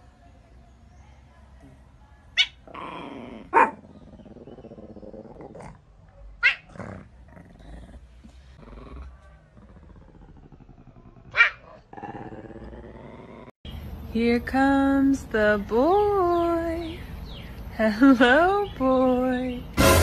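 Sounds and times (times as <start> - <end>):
cat growling: 2.6 - 5.8, 8.6 - 13.5.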